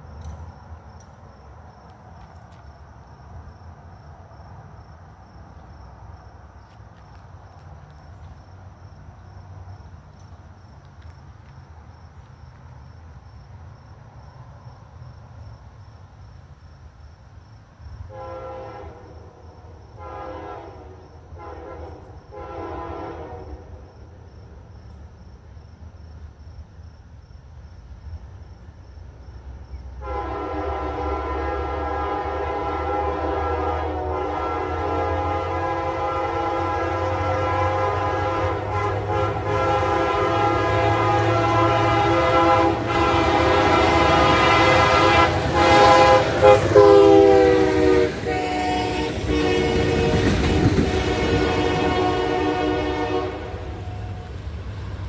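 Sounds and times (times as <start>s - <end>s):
low rumble of train: 0.0s - 55.0s
train air horn chord: 18.1s - 19.2s, 20.0s - 23.7s, 30.0s - 54.3s.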